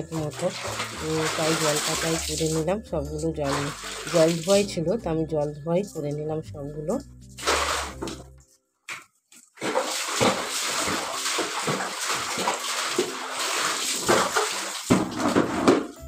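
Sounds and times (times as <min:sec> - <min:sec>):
wet clothes sloshing in water: 0:00.0 - 0:02.7, 0:03.4 - 0:04.7, 0:07.4 - 0:08.2, 0:09.5 - 0:15.6.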